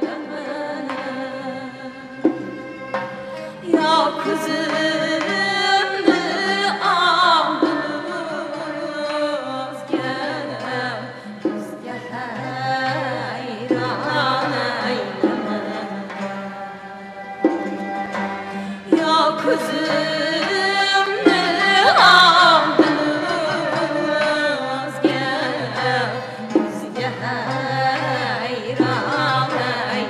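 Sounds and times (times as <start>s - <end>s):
ensemble of zither and lutes: 0.0s - 30.0s
women singing together: 0.0s - 30.0s
sharp struck beats: 2.1s - 6.7s.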